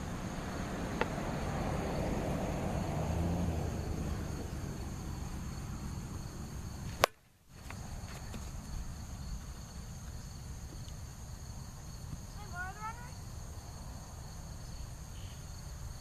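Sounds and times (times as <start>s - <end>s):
crickets chirring: 0.0s - 16.0s
plastic bat hitting ball: 6.9s - 7.2s.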